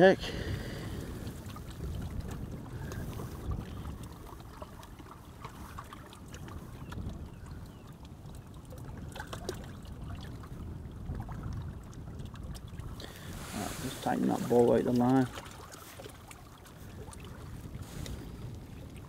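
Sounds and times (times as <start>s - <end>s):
wind rumbling on microphone: 0.0s - 19.0s
small waves lapping on stones: 11.1s - 19.0s.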